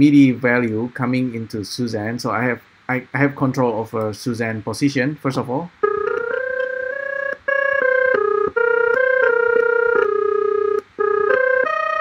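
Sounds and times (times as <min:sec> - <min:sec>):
synthesizer melody: 0:05.8 - 0:12.0.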